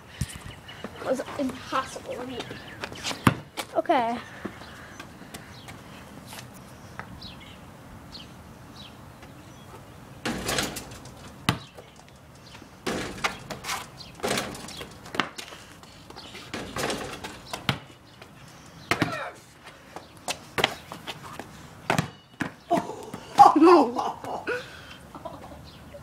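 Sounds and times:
basketball bouncing on concrete: 3.2s - 3.7s, 11.4s - 11.8s, 12.8s - 15.4s, 16.5s - 18.0s, 18.9s - 19.3s, 21.9s - 23.5s
basketball striking hoop: 10.2s - 11.8s, 12.8s - 13.5s, 14.2s - 14.9s, 16.5s - 17.9s, 21.9s - 22.5s.

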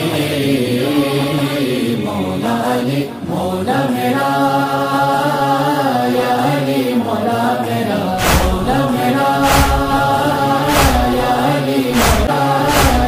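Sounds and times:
deep thump: 8.2s - 13.0s
low hummed drone: 8.2s - 13.0s.

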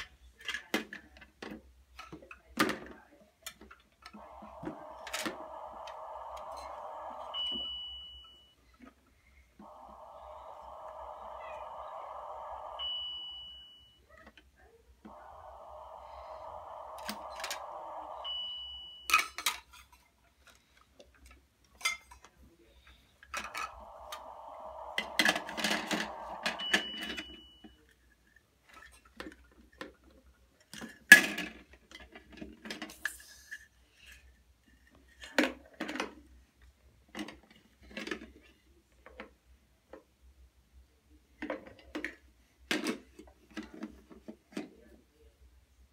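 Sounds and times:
electronic hissing cooking sound: 4.2s - 8.1s, 9.6s - 13.8s, 15.1s - 19.0s, 23.4s - 27.6s
short high beeps: 4.2s - 8.6s, 9.6s - 14.0s, 15.1s - 19.2s, 23.5s - 27.6s.

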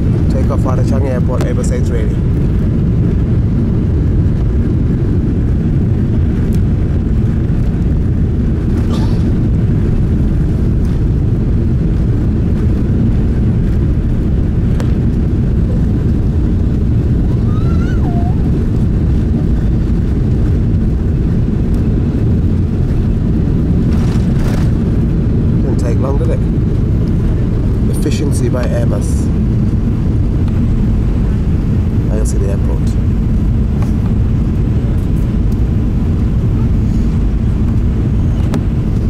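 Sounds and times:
jet engines rumbling in cabin: 0.0s - 39.0s.

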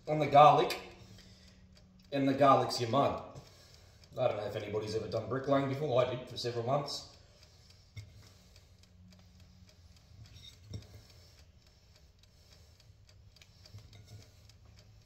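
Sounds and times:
light ticking: 0.0s - 15.0s
soft clicks: 5.7s - 15.0s.

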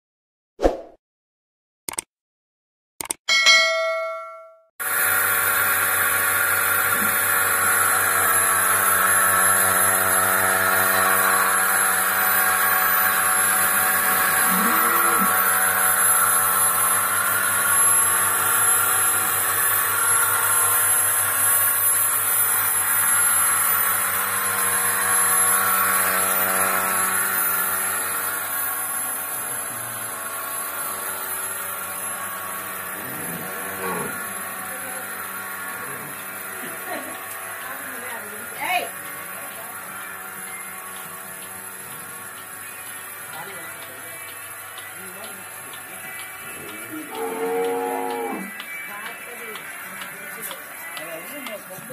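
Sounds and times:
vacuum pump humming: 4.8s - 20.9s.

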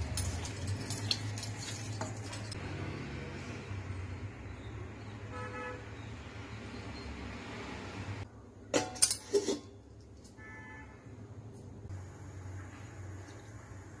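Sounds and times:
bangles clicking against pot: 0.0s - 2.5s.

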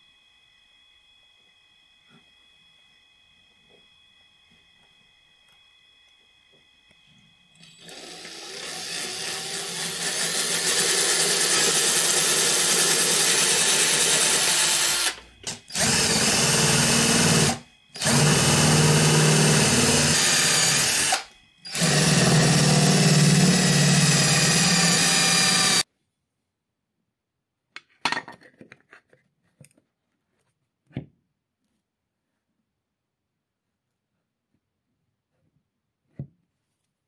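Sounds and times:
cordless drill boring into wood: 7.6s - 25.8s.

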